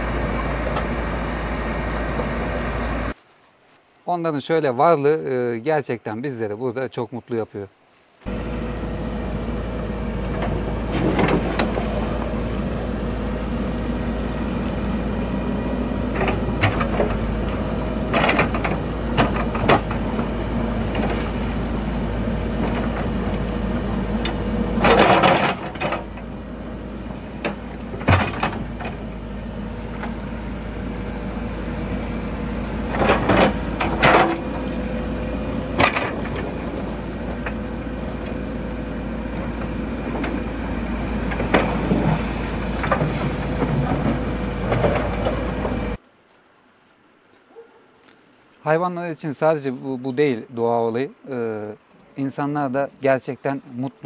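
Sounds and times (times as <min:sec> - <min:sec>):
diesel engine running: 0:00.0 - 0:03.2, 0:08.2 - 0:46.0.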